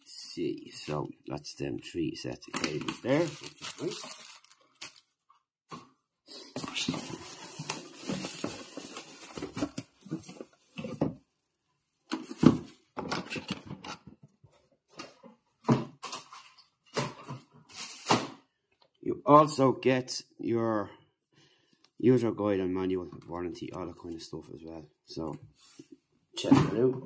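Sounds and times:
bubble wrap crinkling: 2.5s - 5.2s, 6.6s - 10.5s.

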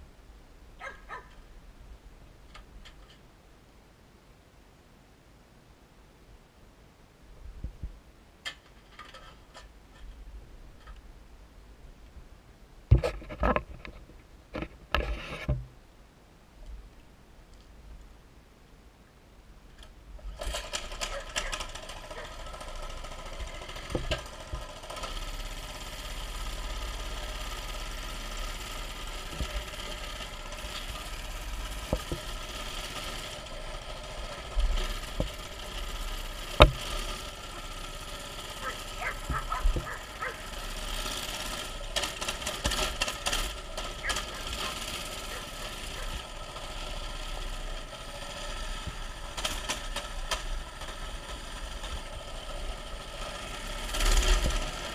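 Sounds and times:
sharp knocks and rattles: 12.9s - 15.7s, 19.8s - 54.9s
small engine running: 20.2s - 54.9s.

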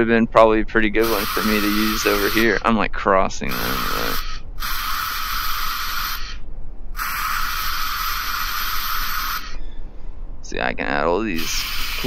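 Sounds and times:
spray-like sculpting tool hiss: 1.0s - 2.6s, 3.5s - 6.4s, 7.0s - 9.6s, 11.4s - 12.0s.

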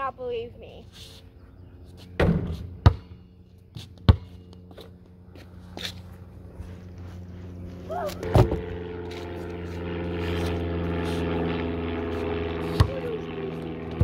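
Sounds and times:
motor droning: 1.2s - 14.0s
basketball bouncing: 2.2s - 3.2s, 4.0s - 4.5s, 12.7s - 13.2s.

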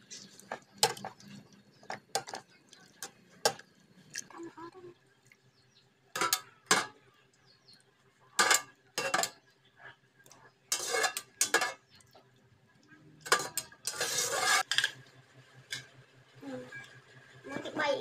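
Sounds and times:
metal tongs clinking on strainer: 13.2s - 14.6s.

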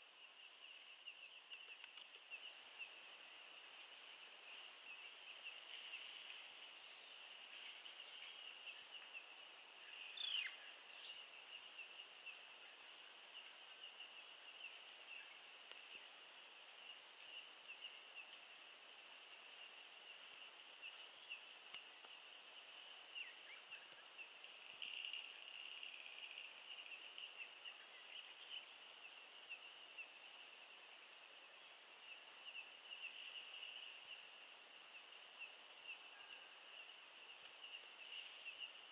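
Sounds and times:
insect chorus drone: 0.0s - 38.9s
bird calls: 7.6s - 12.4s.

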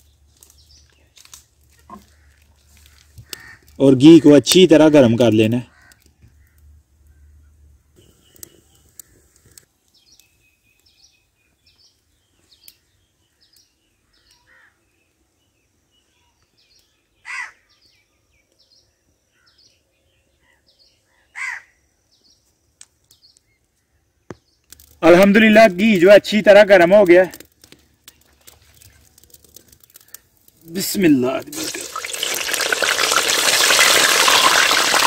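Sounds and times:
small birds chirping: 0.0s - 3.8s, 5.8s - 26.0s
crow cawing: 1.9s - 3.8s, 5.7s - 6.6s, 14.4s - 14.8s, 17.2s - 17.7s, 21.1s - 21.8s.

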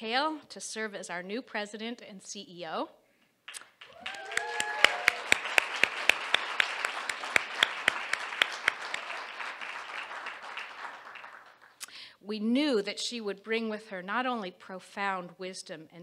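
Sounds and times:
audience applauding: 3.5s - 11.8s
close hand claps: 3.5s - 11.9s
brief cheer: 3.8s - 6.6s.

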